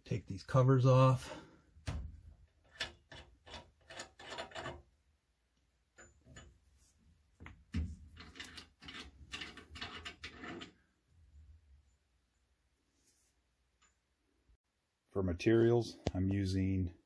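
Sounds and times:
threaded caps scraping and clicking: 2.5s - 4.9s, 8.1s - 10.8s.

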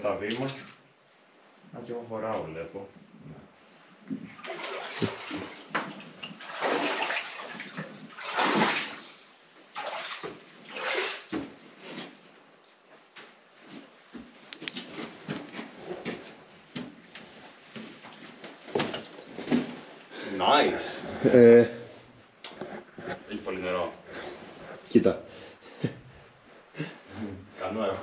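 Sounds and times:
person wading through water: 4.3s - 11.4s.

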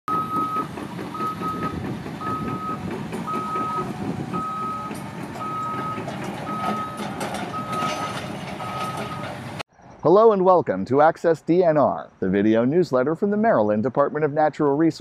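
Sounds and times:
backup alarm beeping: 0.1s - 9.3s
engines rumbling: 0.1s - 14.9s.

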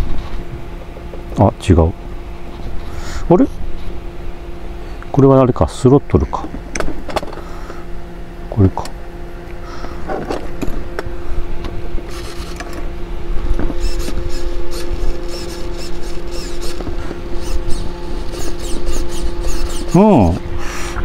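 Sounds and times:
steady servo hum: 0.0s - 21.0s
servo motor whines: 12.0s - 12.8s, 13.5s - 21.0s.

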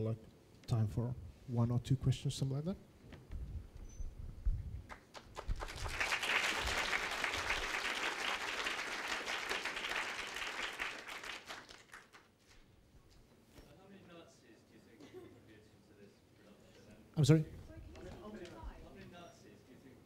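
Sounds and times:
audience applauding: 4.9s - 12.4s.

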